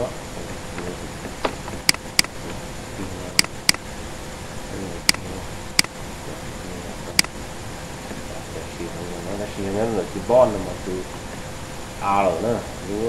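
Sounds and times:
background hiss and hum: 0:00.0 - 0:13.0.

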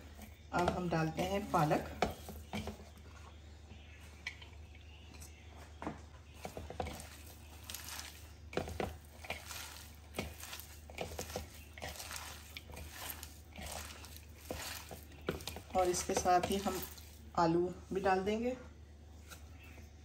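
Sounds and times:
hand tossing food in a bowl: 0:06.3 - 0:17.4.

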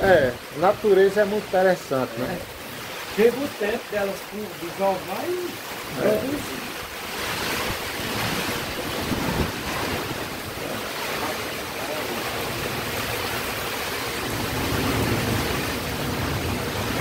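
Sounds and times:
heavy rain falling: 0:00.0 - 0:17.0
wind rumbling on microphone: 0:06.4 - 0:17.0.

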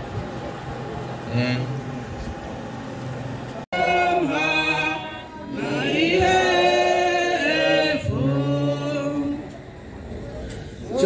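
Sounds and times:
group singing a hymn: 0:03.7 - 0:09.8.

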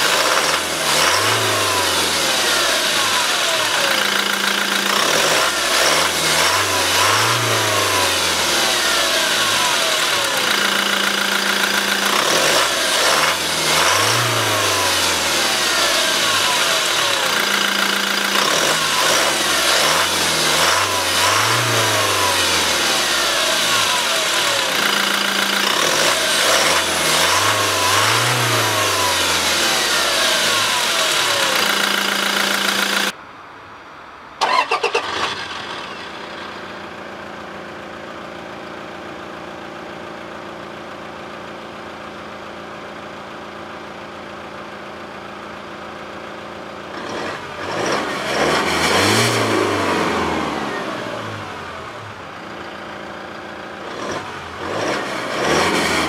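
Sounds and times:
diesel engine revving: 0:00.0 - 0:33.2, 0:34.4 - 0:37.2, 0:46.8 - 0:56.0
engine whine: 0:00.0 - 0:33.2.

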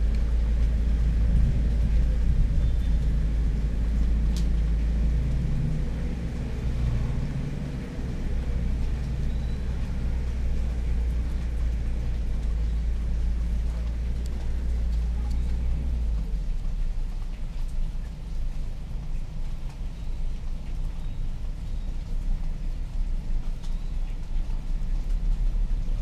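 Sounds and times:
low rumble: 0:00.0 - 0:19.8.

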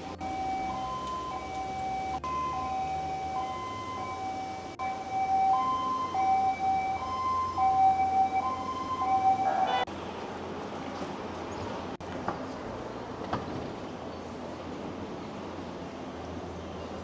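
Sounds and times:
two-tone emergency siren: 0:00.0 - 0:09.9
street background noise: 0:00.0 - 0:17.0.

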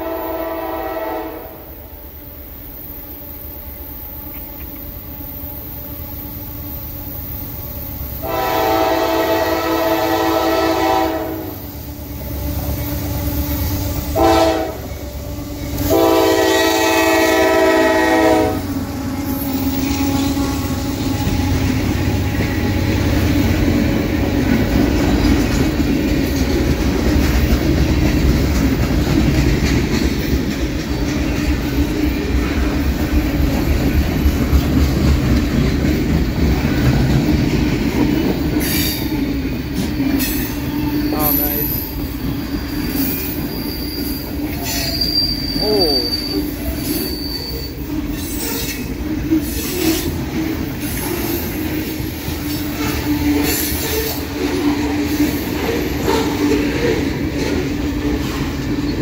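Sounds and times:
locomotive air horn blasts: 0:00.0 - 0:01.7, 0:08.2 - 0:11.6, 0:14.1 - 0:15.0, 0:15.8 - 0:18.8
freight train rumbling past: 0:00.0 - 0:59.0.

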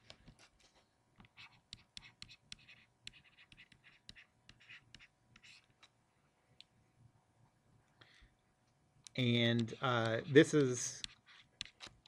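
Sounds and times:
stylus tapping and scratching on tablet: 0:00.0 - 0:06.0, 0:09.0 - 0:12.0.

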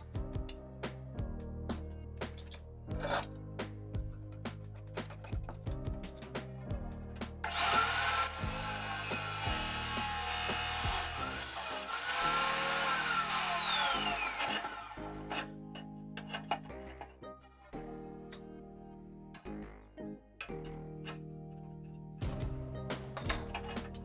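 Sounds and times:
cut-off saw grinding steel: 0:07.4 - 0:15.6.

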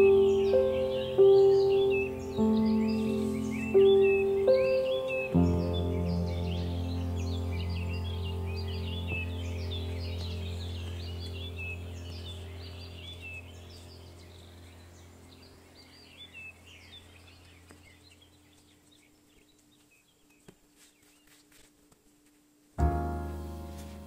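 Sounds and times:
low steady hum: 0:00.0 - 0:20.8
small birds chirping: 0:00.0 - 0:22.1.

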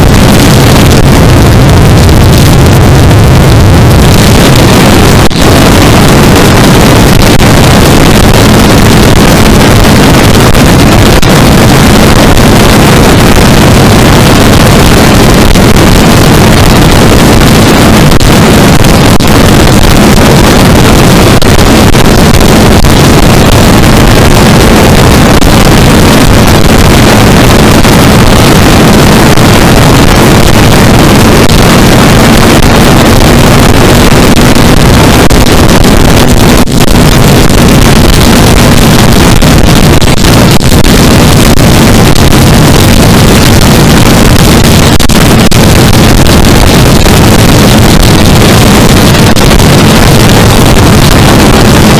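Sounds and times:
motorcycle engine droning: 0:00.0 - 0:06.7
wind buffeting microphone: 0:00.0 - 0:51.9.

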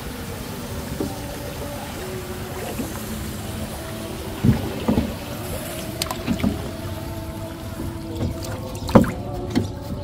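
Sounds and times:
knock on wooden boat: 0:08.2 - 0:09.7.

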